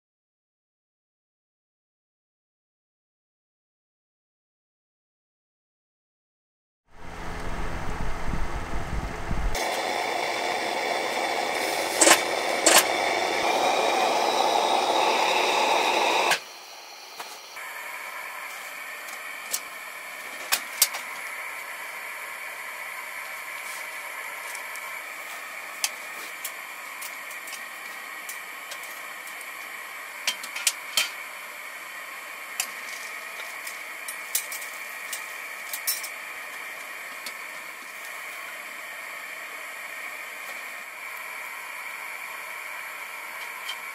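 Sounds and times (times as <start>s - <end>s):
pressure lantern flame hissing: 7.0s - 43.9s
wood stove crackling: 7.1s - 16.4s.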